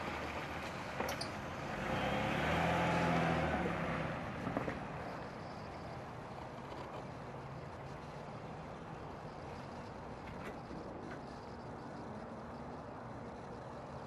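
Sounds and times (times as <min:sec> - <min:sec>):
minivan engine and tyres: 0:00.0 - 0:14.0.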